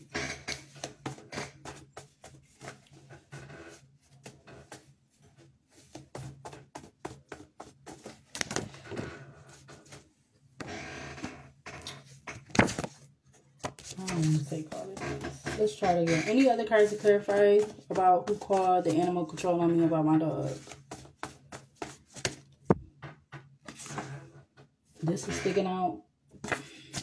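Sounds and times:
cards being shuffled: 0.5s - 8.8s, 11.9s - 15.0s, 16.8s - 19.4s, 20.4s - 22.8s, 23.6s - 24.0s.

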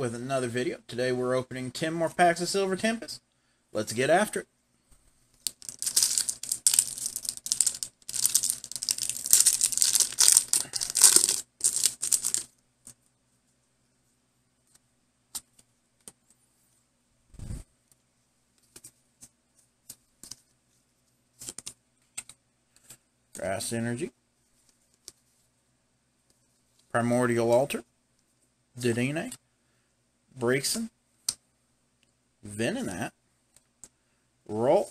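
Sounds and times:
foil wrapper tearing and crinkling: 5.5s - 12.5s.

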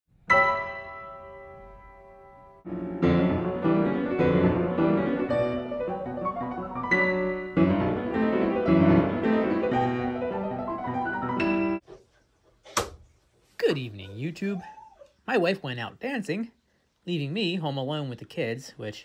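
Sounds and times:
classical piano music: 0.3s - 11.8s.

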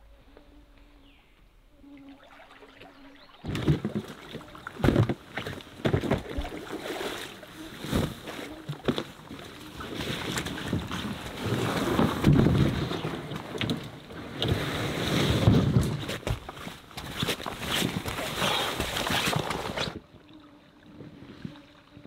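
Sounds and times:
faint hum: 0.0s - 5.6s
canoe hull knocking and scraping: 3.4s - 20.0s.

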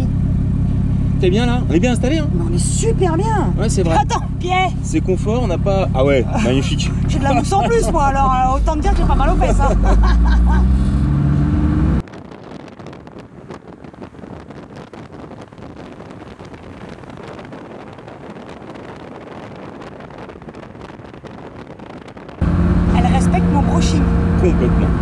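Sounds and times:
car engine drone: 0.0s - 25.0s
road and traffic noise: 0.0s - 25.0s
faint crackles: 12.0s - 22.4s.

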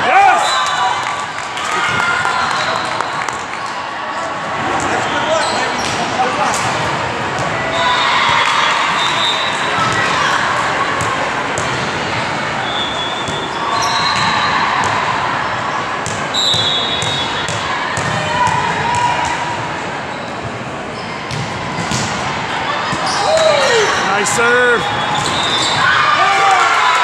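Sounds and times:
balls hit and bouncing: 21.3s - 22.3s
shoe squeaks on court: 25.0s - 25.8s.

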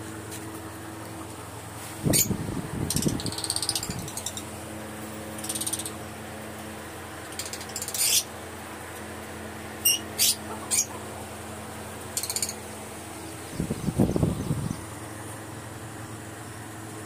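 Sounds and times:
steady low hum: 0.0s - 17.0s
birds chattering with trills: 2.0s - 17.0s
high bird squawks: 7.4s - 8.3s, 9.8s - 11.0s.

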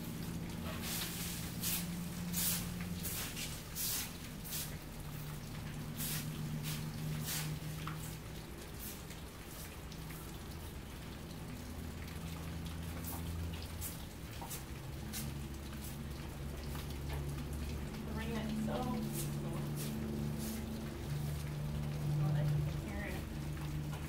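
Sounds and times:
rain dripping: 0.0s - 24.0s
broom sweeping concrete: 0.6s - 4.9s, 6.0s - 9.7s, 13.8s - 16.0s, 18.8s - 20.7s.

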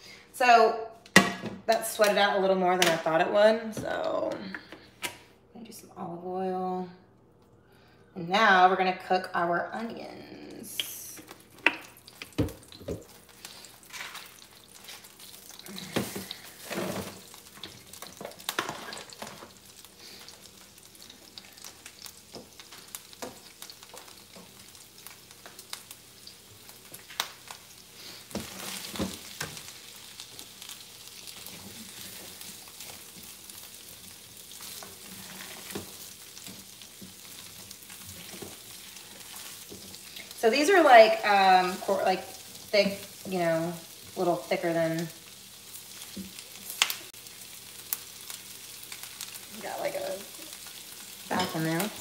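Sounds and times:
onions sizzling in a frying pan: 8.3s - 52.0s
spatula stirring onions: 11.3s - 52.0s.

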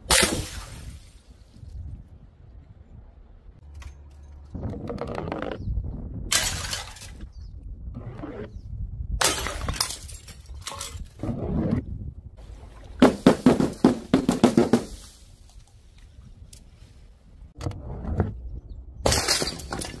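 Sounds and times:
glass jars smashing on tiles: 19.1s - 20.0s.

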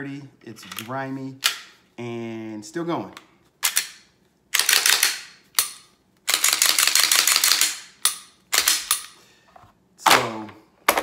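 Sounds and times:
pistol and holster handling noise: 0.6s - 1.8s.

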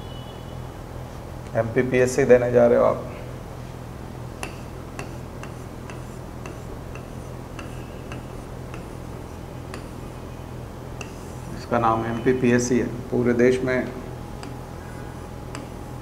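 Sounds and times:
steady low hum: 0.0s - 16.0s
regular ticking: 15.4s - 16.0s.

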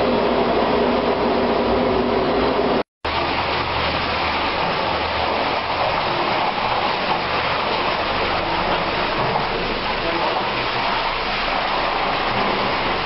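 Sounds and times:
industrial vacuum sucking water: 0.0s - 13.0s.

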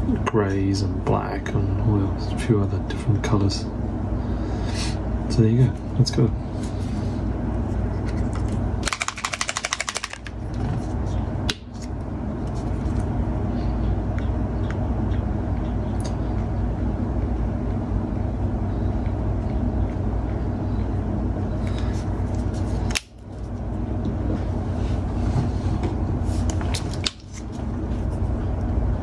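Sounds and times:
low motor hum: 0.0s - 9.4s, 10.0s - 29.0s
paint bottle being shaken: 8.0s - 10.4s.

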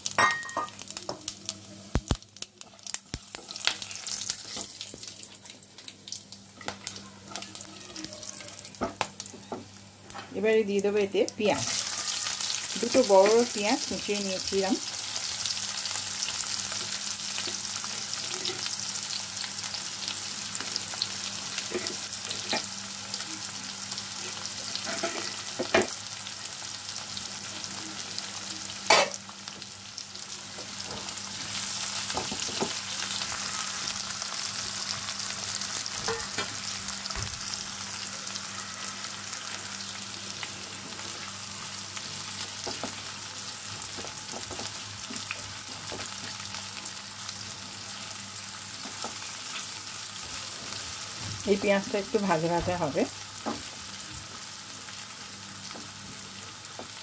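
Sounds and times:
onions sizzling in oil: 0.0s - 57.0s.

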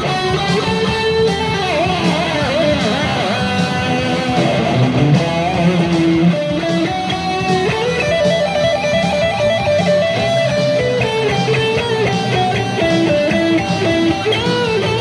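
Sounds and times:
electric guitar lead melody: 0.0s - 15.0s.

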